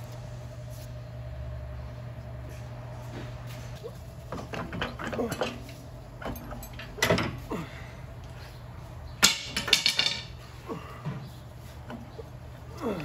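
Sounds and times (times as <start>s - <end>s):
low steady hum: 0.0s - 13.0s
metal tools clinking and knocking: 4.5s - 7.3s, 9.2s - 10.4s.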